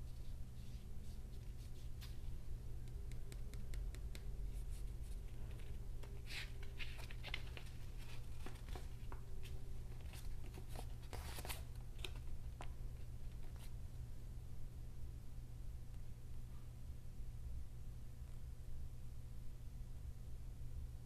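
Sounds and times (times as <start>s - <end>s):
steady low hum: 0.0s - 21.0s
paper rustling and crinkling: 4.8s - 12.7s.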